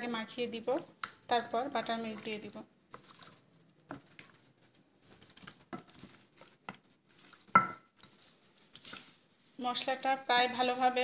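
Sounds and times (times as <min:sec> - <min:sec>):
knock against bowl: 0:07.6 - 0:07.9.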